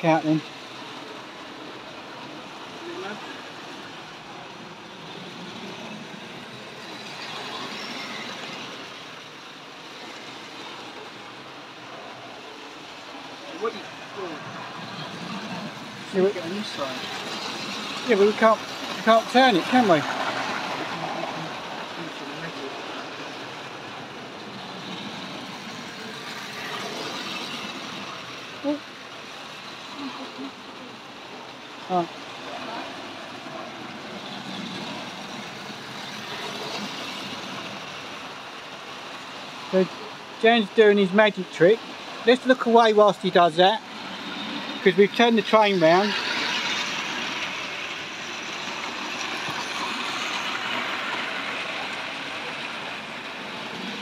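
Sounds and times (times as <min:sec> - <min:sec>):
model train motor whirr and rattle: 0:05.0 - 0:11.5, 0:13.0 - 0:21.2, 0:22.8 - 0:30.0, 0:45.8 - 0:54.0.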